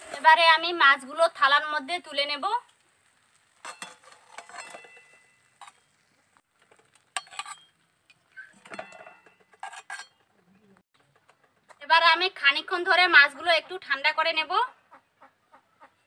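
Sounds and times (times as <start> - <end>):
metal spatula scraping and clinking: 3.6 - 6.0, 6.7 - 7.8, 8.4 - 10.4.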